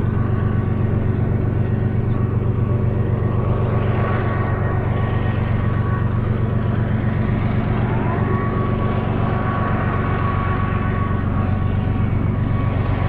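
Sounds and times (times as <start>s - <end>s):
diesel locomotive engine drone: 0.0s - 13.0s
high whine rising in pitch: 0.0s - 13.0s.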